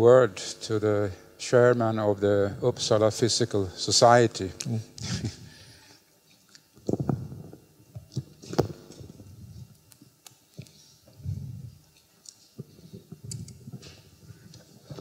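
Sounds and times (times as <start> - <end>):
microphone handling noise: 6.8 - 9.8, 11.1 - 11.8.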